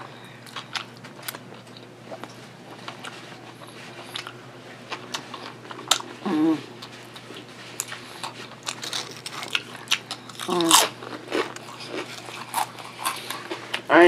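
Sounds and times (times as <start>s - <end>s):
person chewing a sandwich: 0.4s - 13.9s
woman humming: 6.2s - 6.8s, 10.5s - 10.9s.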